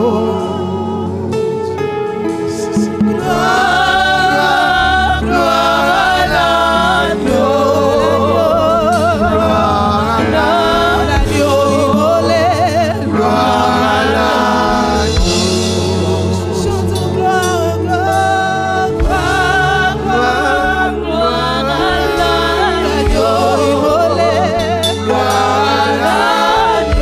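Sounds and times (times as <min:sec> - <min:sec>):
women singing gospel song: 0:00.0 - 0:01.8, 0:02.5 - 0:27.0
instrumental accompaniment: 0:00.0 - 0:27.0.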